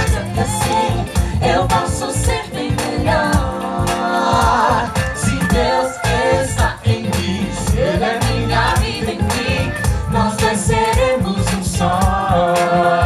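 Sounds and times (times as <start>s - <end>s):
gospel song with band: 0.0s - 13.0s.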